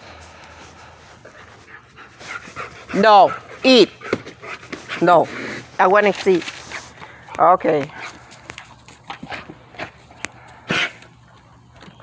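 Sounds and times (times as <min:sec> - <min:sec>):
dog crunching dry kibble: 0:05.8 - 0:11.9.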